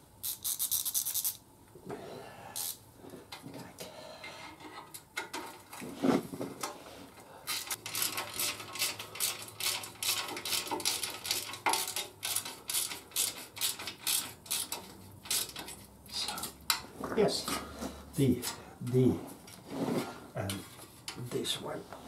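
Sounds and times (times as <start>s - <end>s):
socket ratchet clicking: 0.2s - 1.4s.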